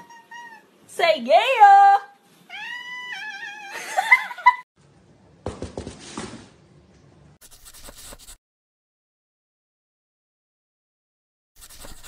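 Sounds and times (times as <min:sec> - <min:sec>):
cat meowing: 0:00.0 - 0:00.7, 0:02.5 - 0:03.8.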